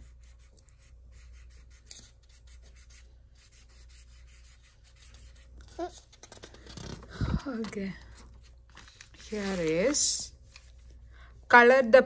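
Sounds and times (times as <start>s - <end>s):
marker scribbling on paper: 0.0s - 6.1s.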